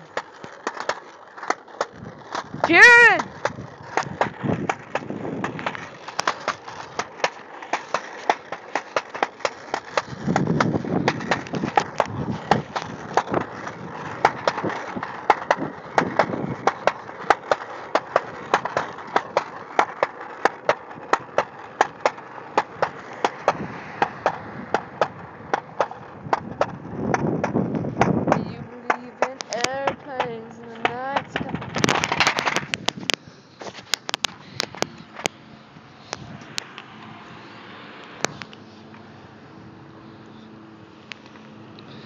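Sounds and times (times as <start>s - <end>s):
wheels clicking over seams: 0.0s - 42.0s
wheels rolling on concrete: 0.0s - 42.0s.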